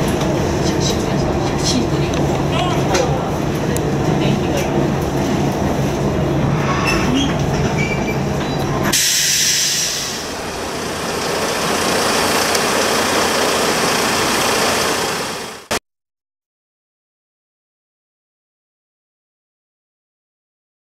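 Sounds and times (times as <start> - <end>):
diesel railcar engine idling: 8.3 - 15.8.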